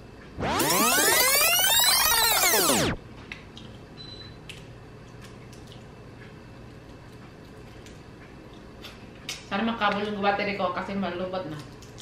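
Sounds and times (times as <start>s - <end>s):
steady low hum: 0.0s - 9.6s
wet eating clicks and smacks: 3.3s - 3.8s, 4.4s - 10.1s, 11.6s - 12.0s.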